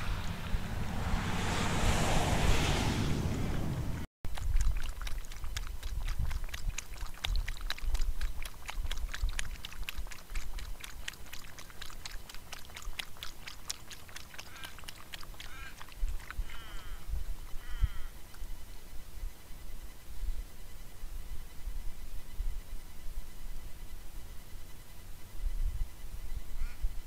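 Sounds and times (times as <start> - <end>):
wind rumbling on microphone: 0.0 - 18.1
kangaroo lapping water: 4.3 - 17.0.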